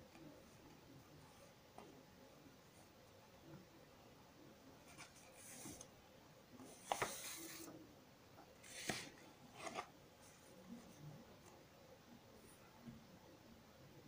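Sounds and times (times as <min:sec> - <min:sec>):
paper rustling: 0:06.7 - 0:07.7.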